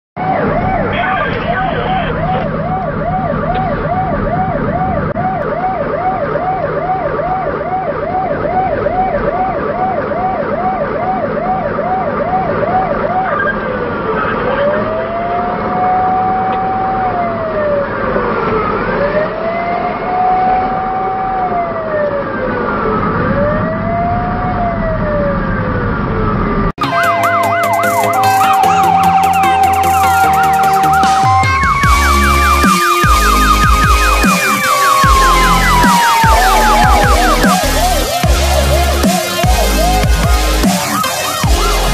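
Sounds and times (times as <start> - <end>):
electronic siren: 0.2 - 41.9
engine and road noise: 0.2 - 41.9
music: 26.8 - 41.9.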